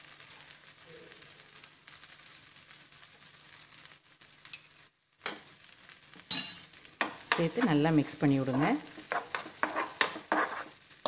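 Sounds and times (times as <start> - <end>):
onions sizzling in oil: 0.0 - 11.0
spoon clacking against pan: 5.2 - 5.5, 6.3 - 10.8.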